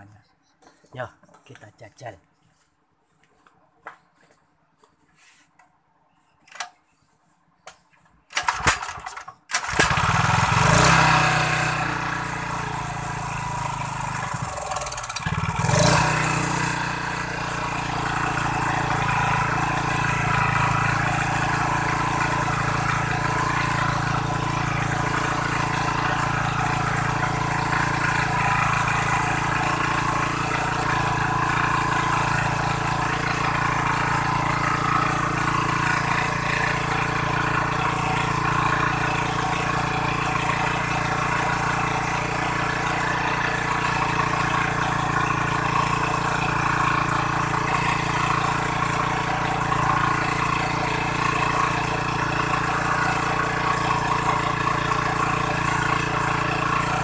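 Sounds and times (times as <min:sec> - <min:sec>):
generator engine running: 0:08.4 - 0:57.0.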